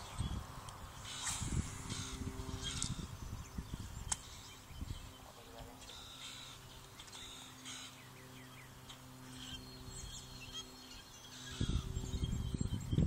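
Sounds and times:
small birds chirping: 0:00.0 - 0:13.0
steady low hum: 0:00.0 - 0:13.0
ragged low rumbling on microphone: 0:11.5 - 0:13.0.

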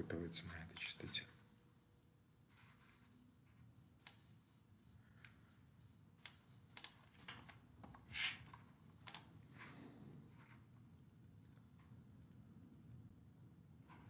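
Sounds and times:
mouse clicks: 0:09.0 - 0:09.3.

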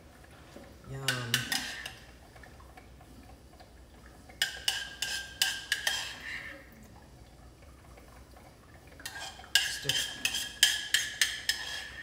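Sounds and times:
metal spoon scraping saucepan: 0:01.1 - 0:02.0, 0:04.6 - 0:06.4, 0:09.0 - 0:12.0.

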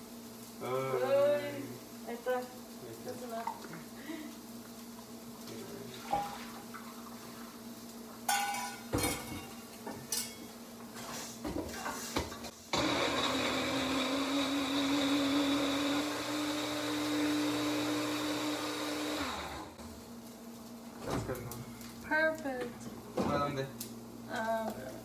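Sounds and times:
kitchenware clattering: 0:08.3 - 0:10.6
electric blender running: 0:12.7 - 0:19.9.

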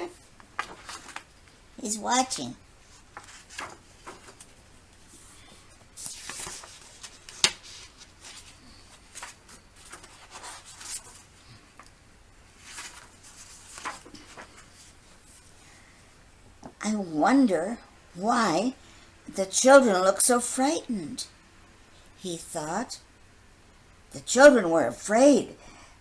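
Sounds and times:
book pages rustling: 0:00.1 - 0:01.6, 0:02.8 - 0:11.9, 0:12.6 - 0:15.6.

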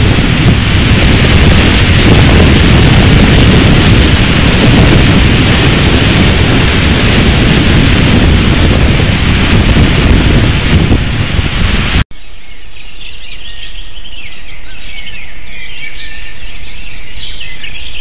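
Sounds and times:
wind buffeting microphone: 0:00.0 - 0:12.1.

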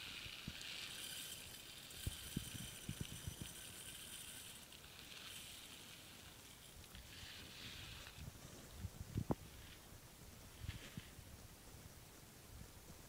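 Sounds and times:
rice poured into metal saucepan: 0:00.0 - 0:08.2.

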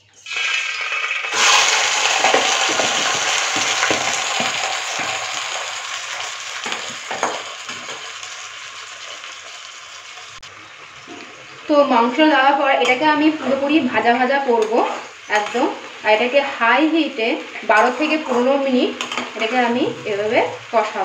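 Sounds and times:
chicken sizzling in hot oil: 0:00.0 - 0:21.0
spatula knocking and scraping pan: 0:02.2 - 0:05.7, 0:06.6 - 0:08.1.

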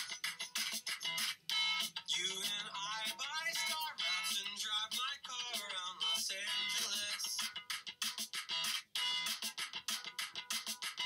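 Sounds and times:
guitar accompaniment: 0:00.0 - 0:11.0
person singing: 0:02.0 - 0:07.6.

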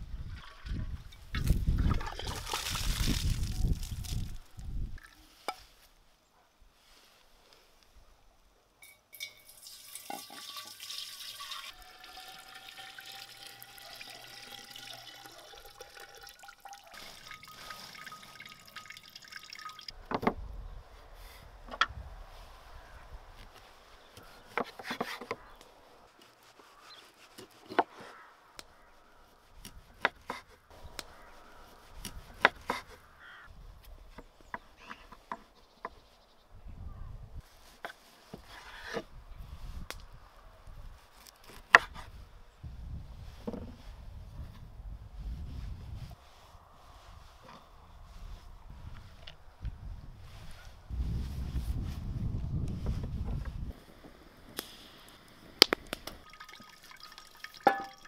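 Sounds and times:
juice pouring into glass jar: 0:09.2 - 0:20.0, 0:56.2 - 0:58.0.

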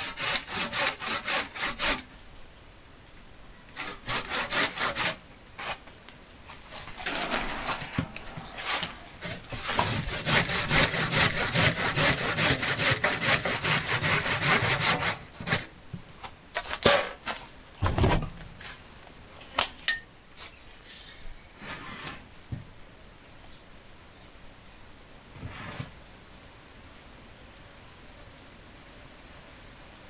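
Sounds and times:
hand saw cutting wood: 0:00.0 - 0:02.1, 0:03.8 - 0:05.2, 0:08.6 - 0:15.7.

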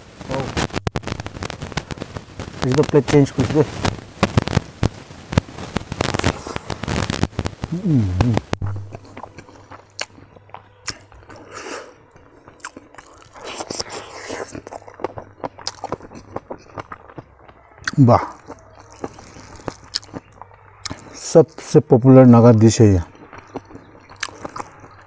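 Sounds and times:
low steady hum: 0:07.3 - 0:16.9
wet chewing and smacking: 0:08.3 - 0:21.8, 0:23.0 - 0:25.0.

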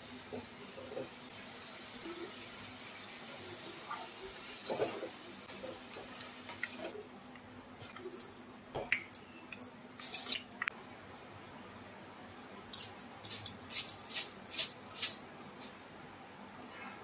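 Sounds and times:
hot oil sizzling: 0:00.0 - 0:07.0.

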